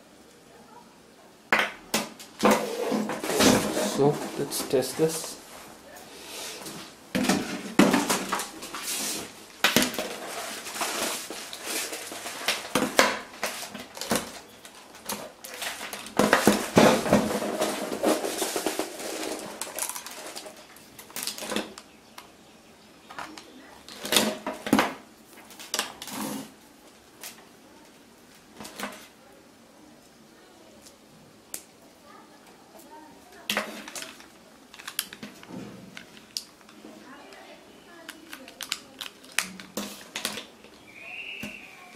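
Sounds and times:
cables rustling: 2.2 - 22.3, 32.4 - 41.9
plastic clicks: 33.5 - 37.4, 38.0 - 40.8.

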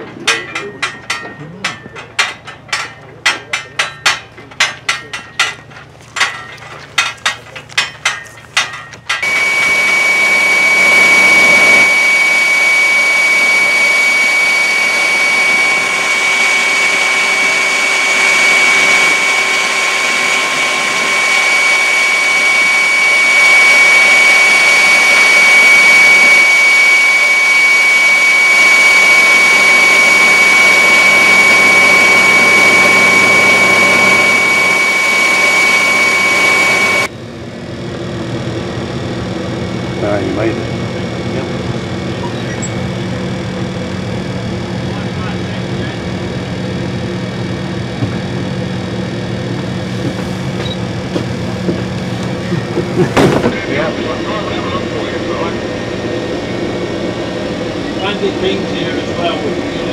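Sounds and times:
machinery noise with high whine: 0.0 - 59.9.

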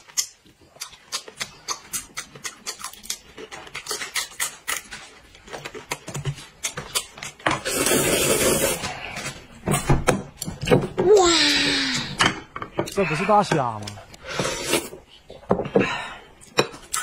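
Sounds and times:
wet chewing mouth clicks: 0.0 - 4.8
slurping noodles: 7.6 - 9.0, 14.2 - 15.0.

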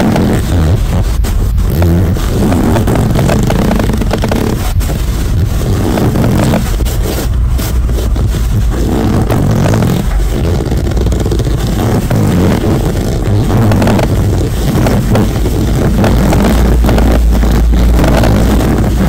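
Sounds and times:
hand fart noises: 0.0 - 19.0.

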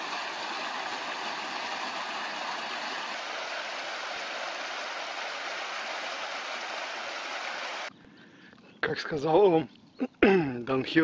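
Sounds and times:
small waterfall splashing: 0.0 - 7.9.

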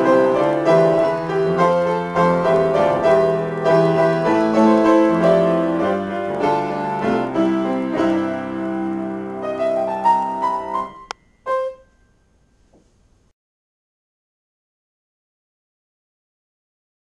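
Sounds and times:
solo piano: 0.0 - 12.9.

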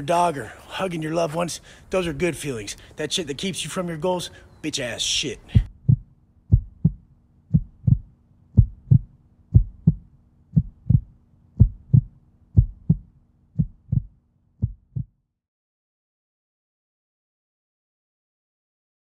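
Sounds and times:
faint steady hum: 0.0 - 15.1
heartbeat thumps: 5.5 - 15.2.

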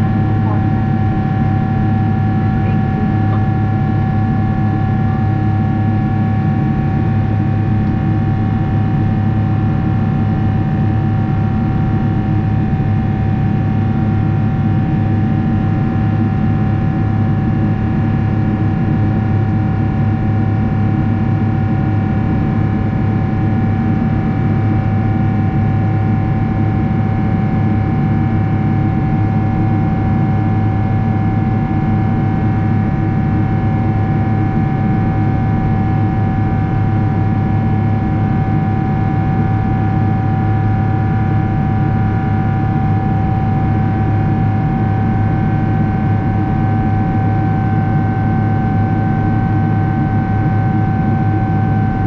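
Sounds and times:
jet airliner cabin noise: 0.0 - 5.6
steady whining tone: 0.0 - 6.4.

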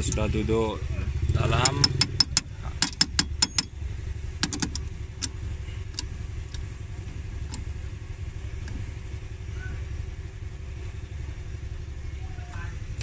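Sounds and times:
socket tool clicking: 1.6 - 3.7.

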